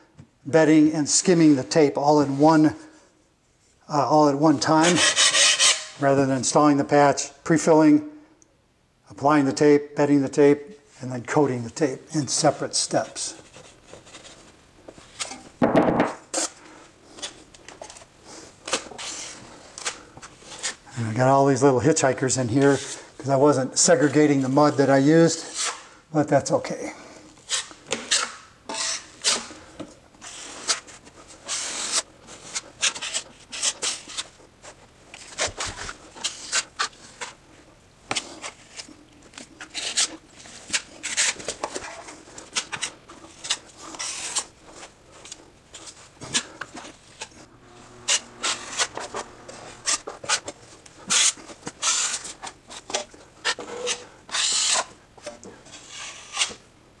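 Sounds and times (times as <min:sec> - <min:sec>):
taping knife scraping compound: 0:04.6 - 0:06.0, 0:16.3 - 0:20.9, 0:22.5 - 0:26.5, 0:27.4 - 0:37.4, 0:38.1 - 0:56.7.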